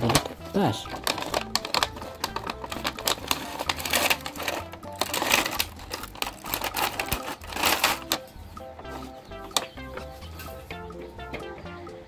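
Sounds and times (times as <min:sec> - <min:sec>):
background music: 0:00.0 - 0:12.0
cardboard box tearing open: 0:02.8 - 0:08.2.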